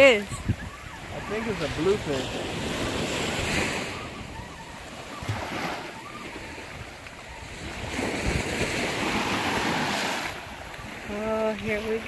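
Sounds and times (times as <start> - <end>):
waves washing against jetty: 0.0 - 12.0
wind buffeting microphone: 0.0 - 12.0.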